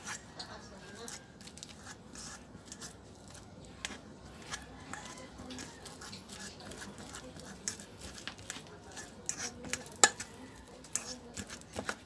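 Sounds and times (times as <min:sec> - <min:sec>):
fork clinking and scraping bowl: 0:00.0 - 0:12.0.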